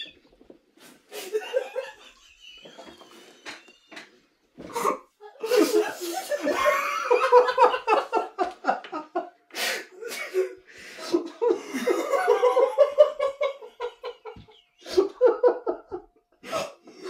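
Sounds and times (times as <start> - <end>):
sharp gasping breath: 9.5 - 11.2.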